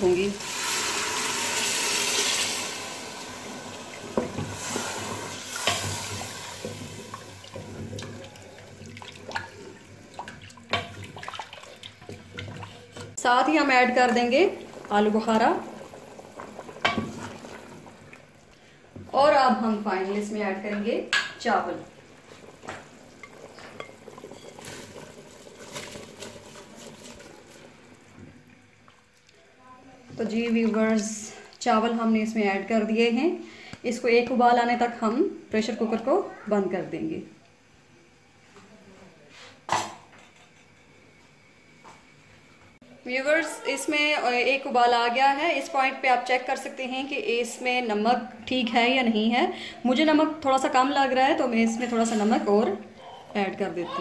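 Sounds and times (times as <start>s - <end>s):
water pouring into a pot: 0.0s - 13.1s, 13.8s - 18.8s, 21.8s - 29.1s
broth simmering: 0.0s - 35.0s
spoon stirring liquid: 5.5s - 13.2s.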